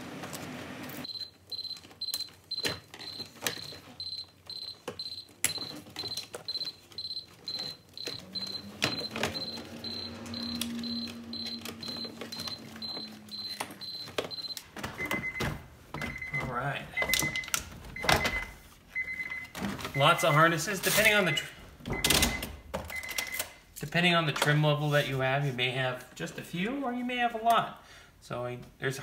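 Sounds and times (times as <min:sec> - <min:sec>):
vehicle warning chime beeping: 0:01.0 - 0:20.4.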